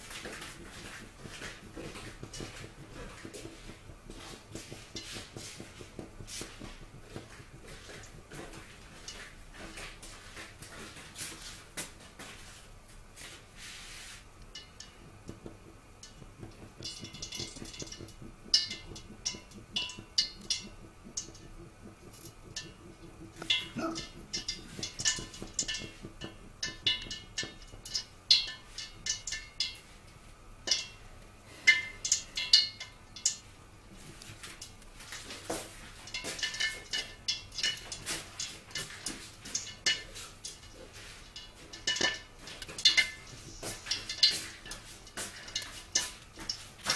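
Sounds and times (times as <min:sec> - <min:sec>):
oil and water popping in wok: 0:00.0 - 0:12.0, 0:14.2 - 0:46.9.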